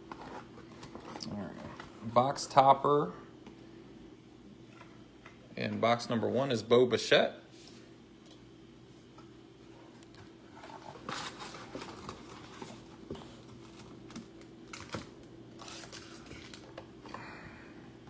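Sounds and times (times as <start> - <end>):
faint steady hum: 0.0 - 18.0
taps clicks and crinkles of packs: 11.0 - 17.3.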